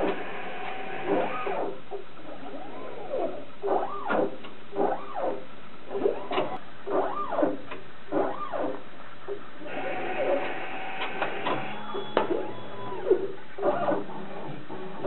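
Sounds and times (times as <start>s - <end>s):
stepper motors whining: 9.6s - 15.0s.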